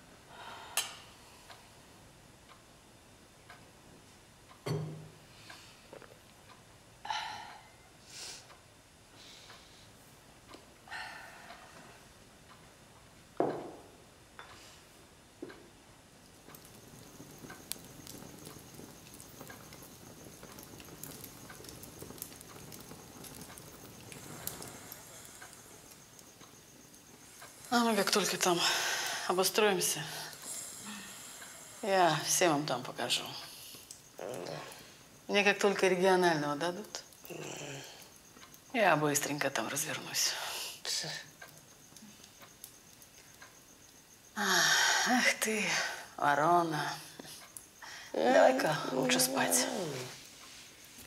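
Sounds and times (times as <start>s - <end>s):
wood fire crackling: 3.4s - 51.0s
fire popping: 15.5s - 51.0s.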